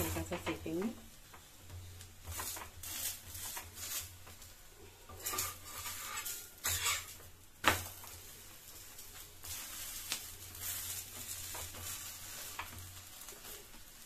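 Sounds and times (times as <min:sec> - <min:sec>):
flatbread sizzling in ghee: 0:00.0 - 0:14.0
metal spatula clacking on griddle: 0:05.1 - 0:08.0.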